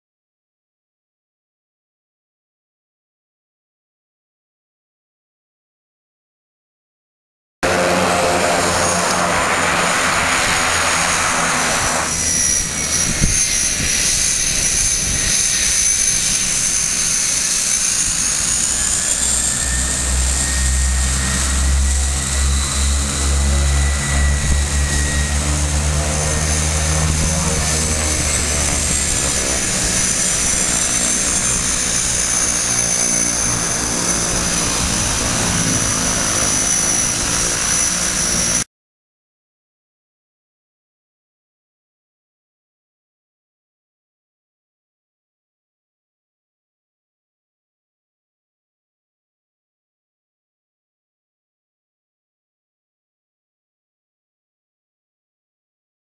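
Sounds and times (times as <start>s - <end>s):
rushing noise: 7.6s - 17.5s
propeller noise: 7.6s - 38.6s
turbine whine: 7.6s - 38.7s.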